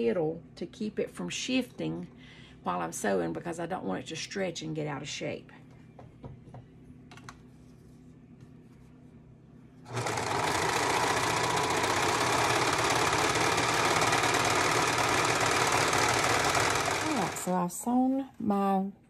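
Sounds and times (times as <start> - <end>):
overlock sewing machine stitching: 9.9 - 17.6.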